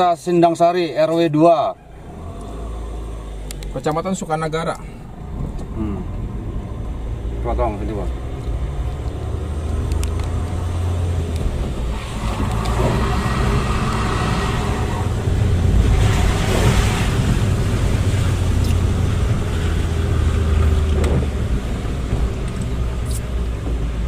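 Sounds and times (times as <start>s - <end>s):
car engine and tyre rumble: 0.0s - 24.0s
road hiss: 9.2s - 24.0s.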